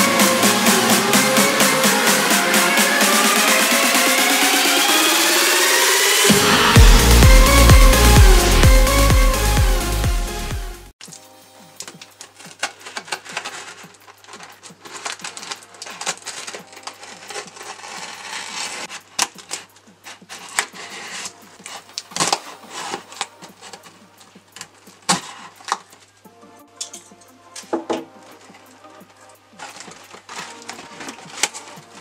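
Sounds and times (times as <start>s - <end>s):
knife slicing packing tape: 11.8s - 26.2s, 28.3s - 32.0s.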